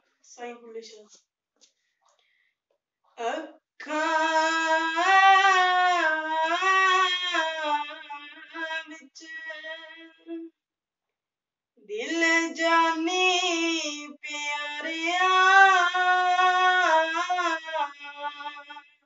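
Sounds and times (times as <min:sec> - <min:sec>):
boy singing unaccompanied: 0:03.8 - 0:10.4, 0:11.9 - 0:18.8.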